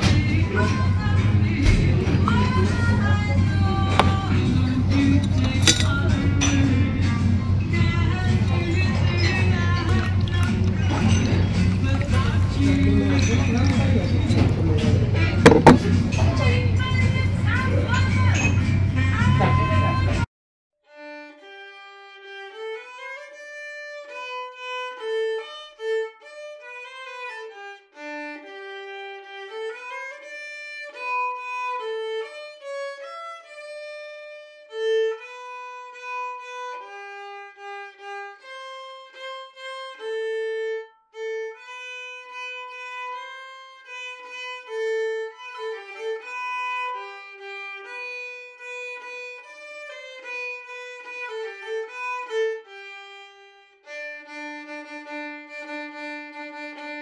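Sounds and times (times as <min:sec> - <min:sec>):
solo violin melody: 0:07.8 - 0:16.0, 0:20.8 - 0:57.0.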